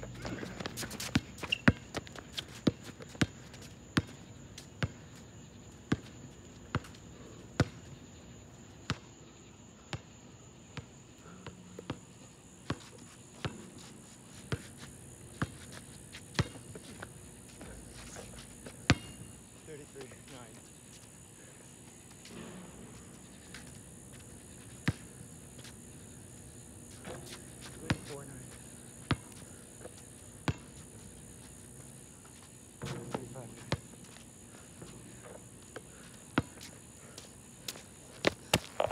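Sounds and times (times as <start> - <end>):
basketball bouncing on asphalt: 0.1 - 4.2, 4.8 - 5.1, 5.9 - 7.0, 7.6 - 7.8, 8.9 - 9.2, 10.8 - 12.0, 14.5 - 17.7, 18.6 - 19.4, 22.3 - 26.3, 26.9 - 30.9, 32.8 - 36.8, 37.7 - 38.9.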